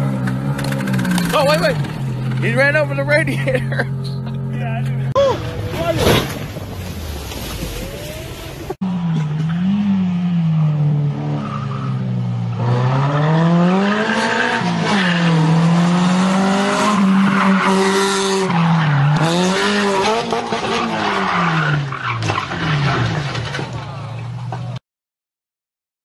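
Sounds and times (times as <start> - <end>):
car engine revving hard: 9.4 - 22.0.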